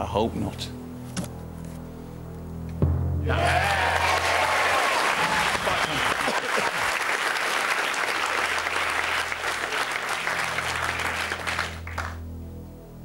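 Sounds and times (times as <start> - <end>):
audience applauding: 3.3 - 12.2.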